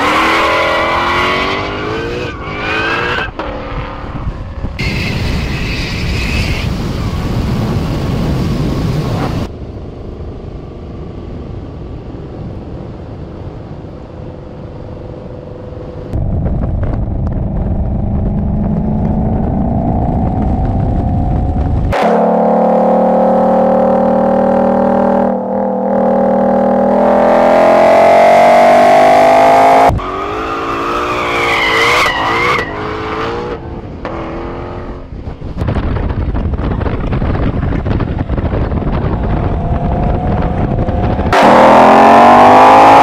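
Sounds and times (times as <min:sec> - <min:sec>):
car engine accelerating: 0:14.7 - 0:35.3, 0:37.8 - 0:43.0.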